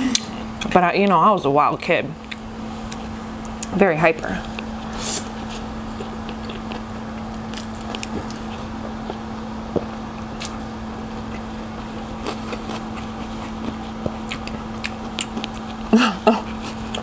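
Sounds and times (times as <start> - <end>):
low background hum: 0.0 - 17.0
wet chewing mouth clicks: 5.9 - 10.6, 11.2 - 15.9.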